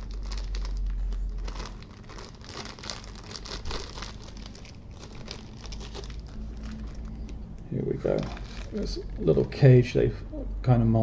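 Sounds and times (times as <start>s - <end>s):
plastic bag crinkling: 0.0s - 9.9s.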